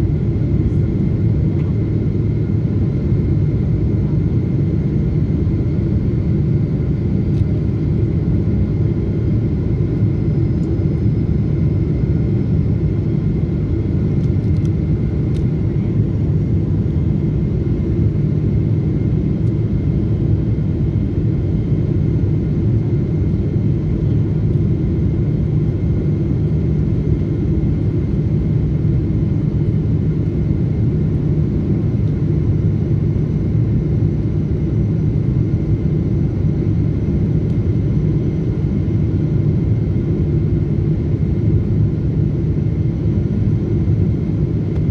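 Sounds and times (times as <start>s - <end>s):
jet engine and airflow rumble: 0.0s - 44.9s.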